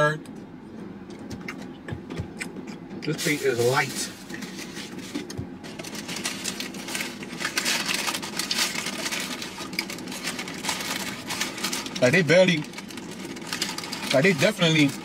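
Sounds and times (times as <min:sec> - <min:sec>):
paper and cardboard rustling: 0:03.2 - 0:15.0.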